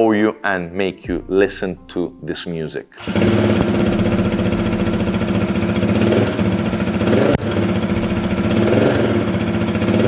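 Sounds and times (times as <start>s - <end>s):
motorcycle engine idling: 3.0s - 10.0s.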